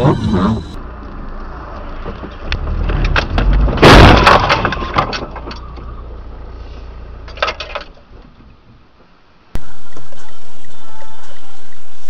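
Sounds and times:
road rumble: 0:00.0 - 0:12.0
car collision impact: 0:02.0 - 0:05.8
cracking and crunching: 0:02.0 - 0:05.8.

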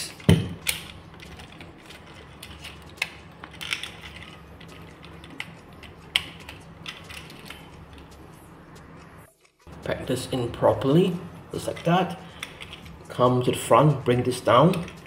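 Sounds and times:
plastic parts clicking: 0:00.0 - 0:07.7.

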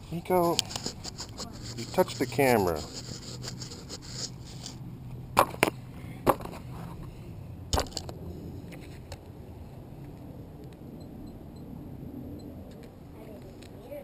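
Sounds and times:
low steady background noise: 0:00.0 - 0:14.0
drone clicks and bumps on concrete: 0:03.4 - 0:06.9.

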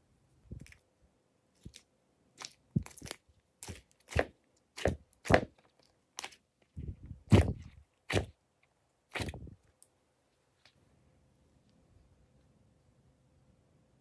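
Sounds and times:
slime squishing with sticky pops: 0:01.6 - 0:06.5, 0:07.3 - 0:08.3, 0:09.1 - 0:09.4.

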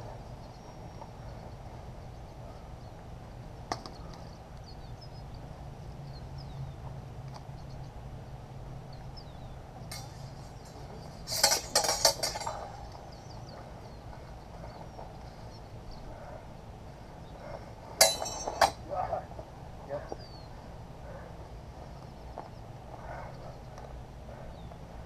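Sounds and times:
steel swords clashing: 0:09.9 - 0:12.9, 0:18.0 - 0:18.8.

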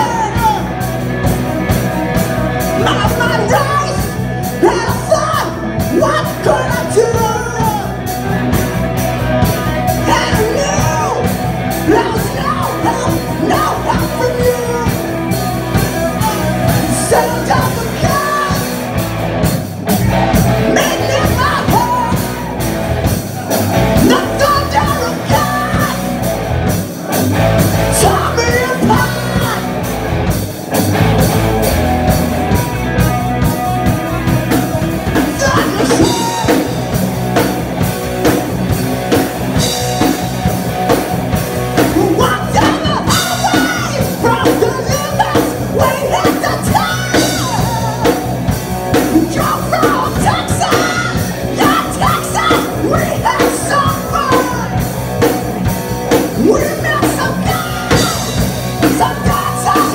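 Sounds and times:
man singing: 0:00.0 - 0:00.9, 0:02.6 - 0:08.5, 0:09.4 - 0:18.8, 0:20.3 - 0:22.6, 0:23.4 - 0:26.3, 0:27.8 - 0:29.9, 0:32.9 - 0:37.0, 0:41.8 - 0:55.3, 0:56.1 - 0:59.9
drum kit: 0:00.0 - 0:59.9
electric bass: 0:00.0 - 0:59.9
electric guitars: 0:00.0 - 0:59.9.

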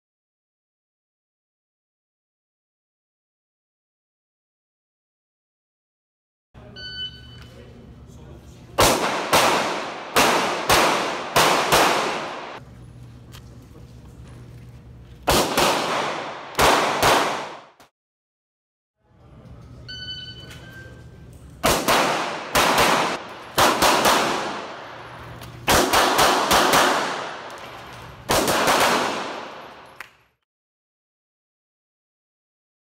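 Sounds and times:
short electronic beep: 0:06.6 - 0:07.6, 0:19.9 - 0:21.0
pistol shots indoors: 0:08.8 - 0:12.6, 0:15.2 - 0:17.9, 0:21.6 - 0:30.0.

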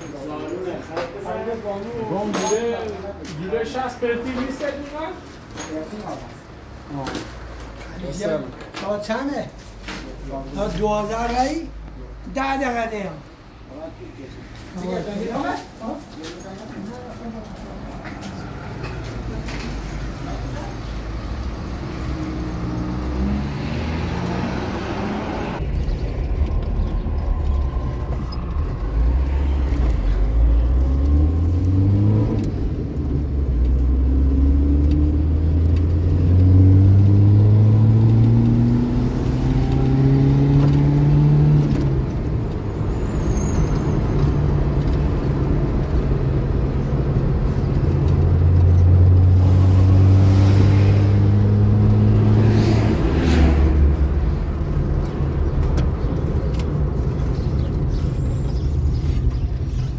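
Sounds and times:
car engine accelerating: 0:20.3 - 0:43.1, 0:44.0 - 0:59.9.

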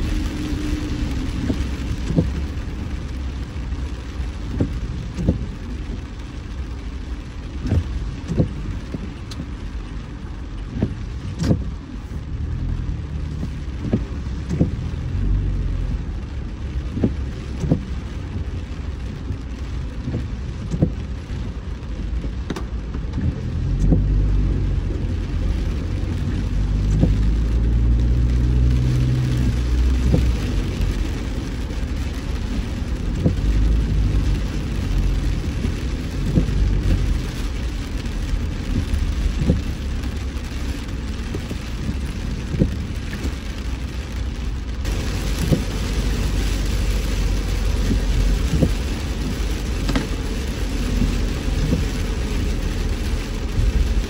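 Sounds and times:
rain ticking on car: 0:00.0 - 0:54.0
road and engine rumble: 0:00.0 - 0:54.0.

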